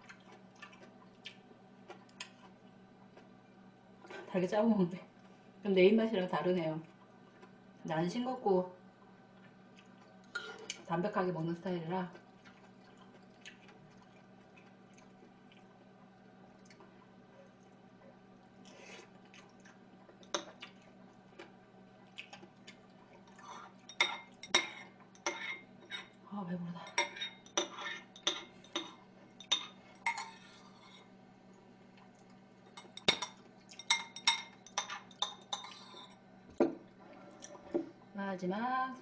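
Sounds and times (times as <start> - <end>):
metal spoon clinking on ceramic bowl: 26.9 - 30.4, 32.8 - 36.1.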